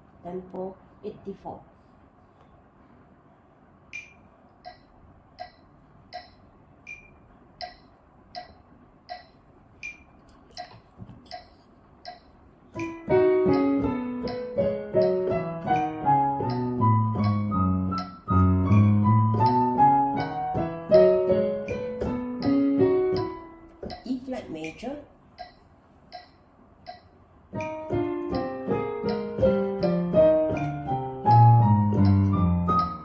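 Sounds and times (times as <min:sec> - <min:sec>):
metronome clicking: 0:03.9 - 0:33.0
digital piano playing scale: 0:11.3 - 0:24.4, 0:26.2 - 0:33.0.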